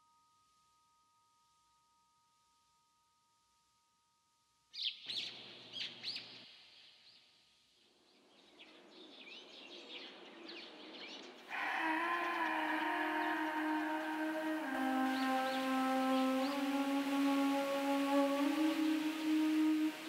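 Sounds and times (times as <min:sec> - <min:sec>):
outdoor hiss: 0:10.1 - 0:20.0
birds chirping: 0:11.5 - 0:20.0.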